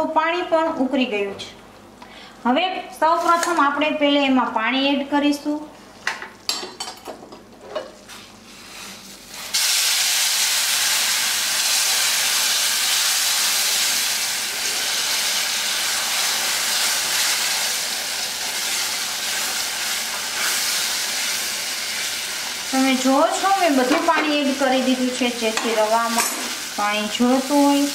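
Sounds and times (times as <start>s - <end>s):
loud sizzling hiss of steam: 8.5s - 23.6s.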